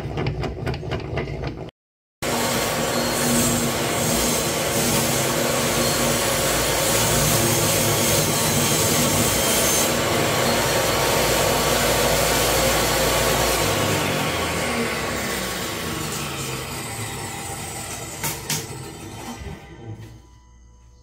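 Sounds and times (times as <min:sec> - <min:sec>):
saw blade cutting wood: 0:02.2 - 0:20.3
table saw motor hum: 0:02.2 - 0:20.3.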